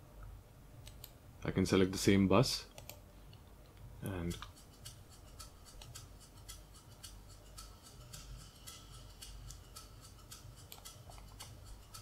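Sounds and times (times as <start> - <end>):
shaker ticks: 4.1 - 12.0.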